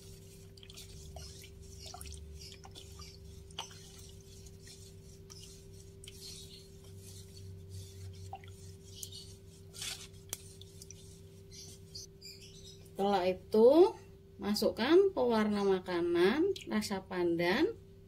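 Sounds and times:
spoon scraping and swishing batter: 0.0s - 12.1s
steady low hum: 0.0s - 18.0s.

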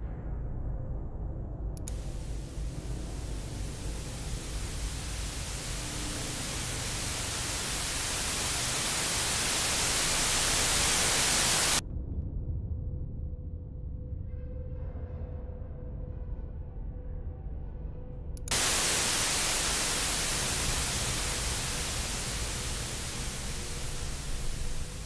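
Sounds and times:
television static hiss: 1.9s - 11.8s, 18.5s - 25.0s.

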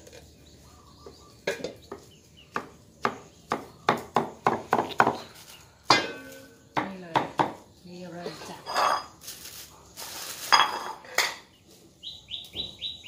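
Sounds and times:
cleaver chopping on wooden block: 2.5s - 5.2s.

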